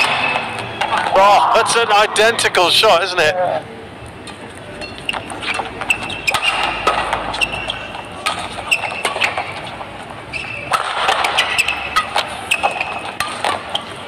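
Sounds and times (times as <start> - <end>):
rackets striking shuttlecock: 4.3 - 9.6, 10.6 - 14.0
shoes squeaking on court: 4.7 - 14.0.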